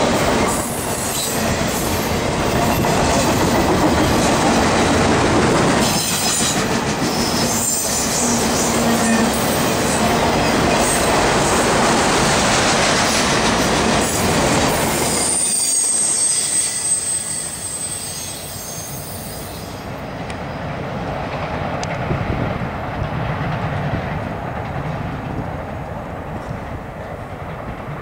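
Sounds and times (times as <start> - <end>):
wheels squealing on rail: 0.0 - 4.5, 5.8 - 20.0.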